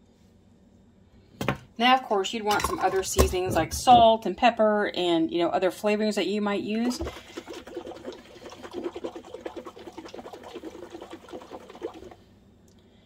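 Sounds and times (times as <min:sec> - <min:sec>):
liquid sloshing in shaken jar: 0:06.8 - 0:12.2.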